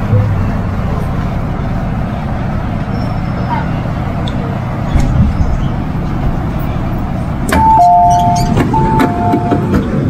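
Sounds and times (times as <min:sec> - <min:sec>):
low train rumble: 0:00.0 - 0:10.0
two-tone door warning chime: 0:07.5 - 0:09.8.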